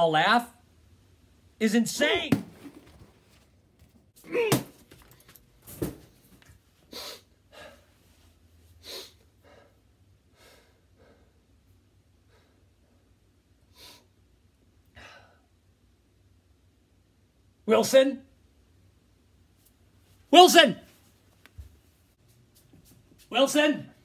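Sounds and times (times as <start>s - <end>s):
man breathing heavily: 6.9s - 11.6s, 12.2s - 14.1s.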